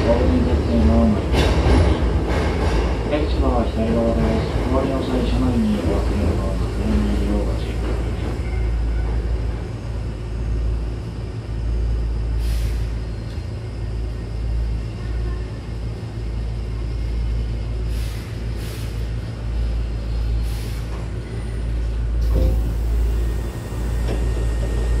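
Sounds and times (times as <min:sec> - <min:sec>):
train rumble: 0:00.0 - 0:25.0
air brake hisses: 0:12.4 - 0:13.0, 0:17.9 - 0:19.1, 0:20.4 - 0:21.0
train doors hissing open: 0:12.4 - 0:13.0, 0:17.9 - 0:19.1, 0:20.4 - 0:21.2, 0:22.2 - 0:25.0.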